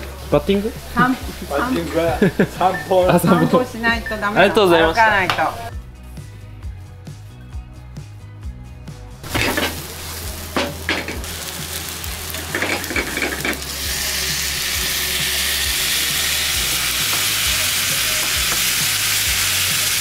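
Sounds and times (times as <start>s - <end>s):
food frying in a pan: 0.0s - 3.7s, 9.2s - 20.0s
utensil clattering: 9.3s - 9.9s, 10.5s - 11.3s.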